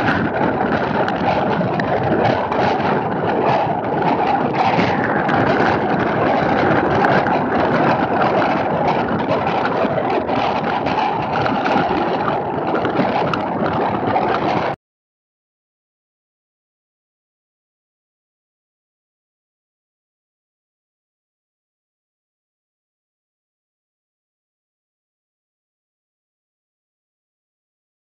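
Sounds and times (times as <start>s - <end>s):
rain pelting microphone: 0.0s - 14.8s
wind buffeting microphone: 0.0s - 14.8s.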